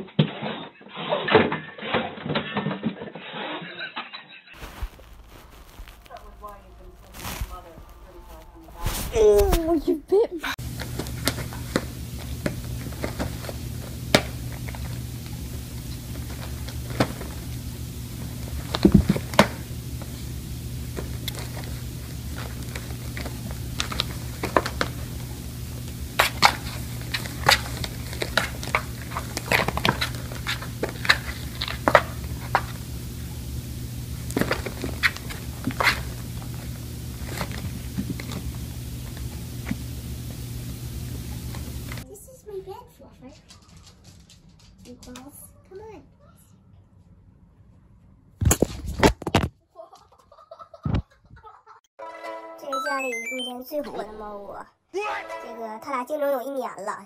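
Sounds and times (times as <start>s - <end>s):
steady low hum: 4.6s - 42.0s
claws scratching on cardboard: 26.2s - 32.6s.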